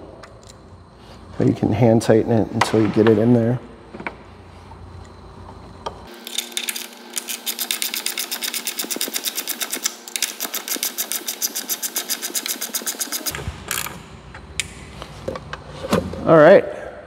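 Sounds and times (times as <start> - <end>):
ratchet clicking: 6.2 - 13.9.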